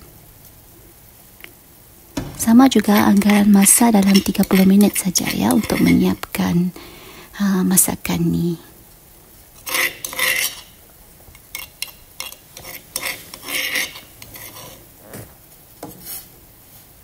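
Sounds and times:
utensils clinking on metal pot: 0:02.2 - 0:06.4, 0:09.6 - 0:10.8.

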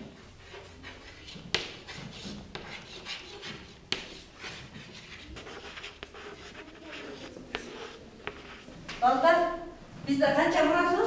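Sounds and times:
chalk scratching on blackboard: 0:00.2 - 0:08.8
chalk tapping on board: 0:00.5 - 0:08.6.

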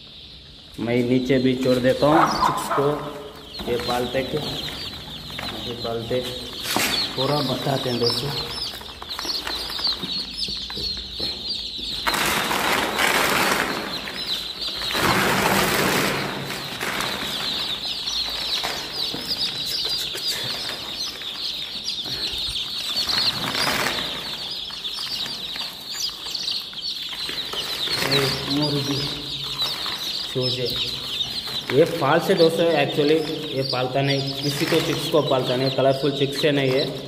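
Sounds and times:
chicks peeping: 0:00.0 - 0:37.0
loud rustling: 0:11.4 - 0:35.7.

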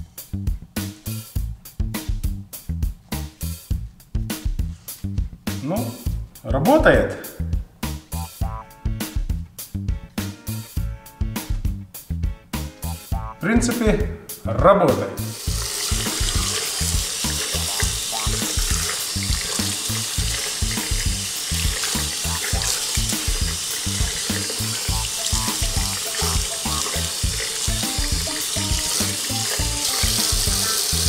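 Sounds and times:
background music with steady beat: 0:00.0 - 0:31.0
tap water running into sink: 0:15.3 - 0:31.0
hands rubbing under water: 0:15.4 - 0:31.0.

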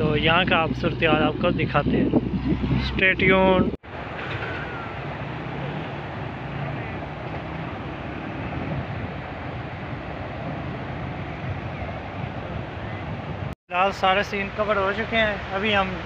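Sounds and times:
low rumble: 0:00.0 - 0:03.8
fast river current rushing: 0:03.9 - 0:12.8.

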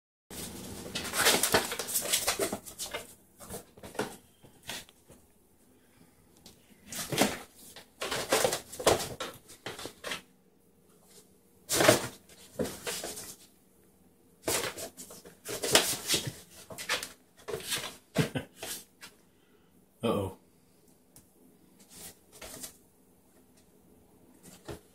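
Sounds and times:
cardboard box scraping on tile floor: 0:00.3 - 0:04.9, 0:11.7 - 0:13.4
scratching and rustling: 0:00.3 - 0:05.2, 0:06.5 - 0:10.3, 0:11.0 - 0:13.6, 0:14.4 - 0:19.2, 0:21.7 - 0:22.8.

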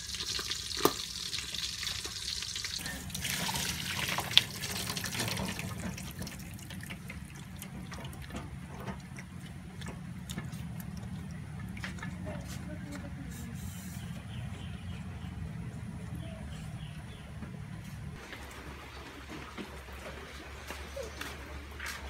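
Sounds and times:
water splashing into strainer: 0:00.0 - 0:09.3
water trickling and dripping: 0:00.0 - 0:13.1, 0:18.2 - 0:22.0.

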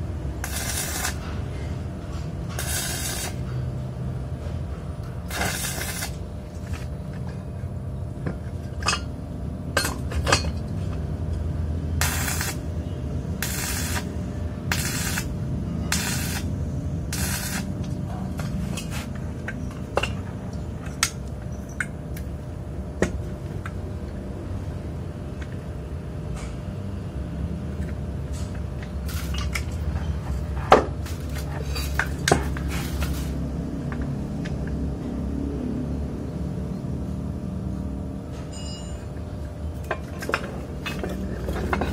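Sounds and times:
welding arc crackling: 0:00.0 - 0:01.6, 0:02.4 - 0:03.5, 0:05.2 - 0:06.9, 0:12.0 - 0:17.9, 0:29.0 - 0:29.6
steady low hum: 0:00.0 - 0:41.9
sharp metal clinks: 0:38.5 - 0:39.1.

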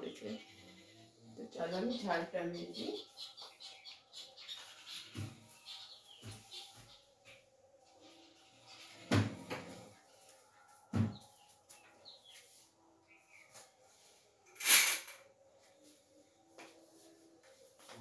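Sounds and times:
brief rustle or scrape: 0:14.5 - 0:15.2.

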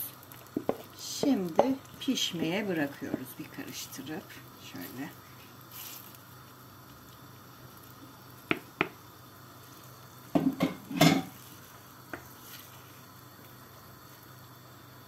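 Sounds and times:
faint steady hum: 0:00.0 - 0:15.0
wooden spoon knocking on pot: 0:00.6 - 0:01.8, 0:08.5 - 0:09.0, 0:10.4 - 0:11.3.

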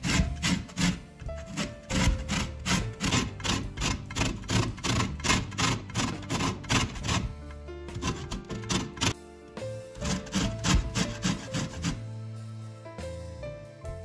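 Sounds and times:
grater rasping orange peel: 0:00.0 - 0:09.2, 0:10.0 - 0:12.0.

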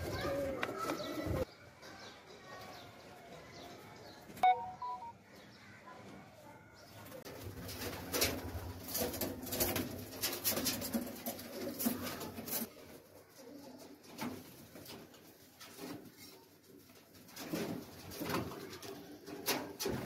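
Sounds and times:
wing flutters and rustling: 0:07.1 - 0:13.0.

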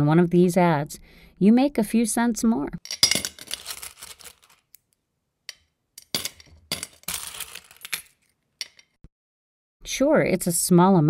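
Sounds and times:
clinking clattering with ringing: 0:05.5 - 0:07.8.

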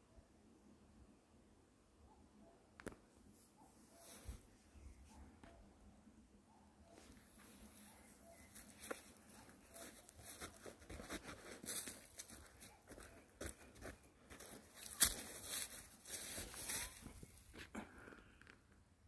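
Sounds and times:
footsteps crunching through grass: 0:07.1 - 0:17.7.

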